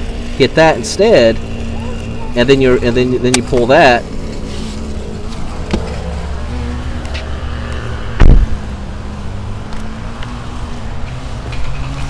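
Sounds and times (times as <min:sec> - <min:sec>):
heavy thump: 0:05.6 - 0:06.0, 0:08.2 - 0:08.6.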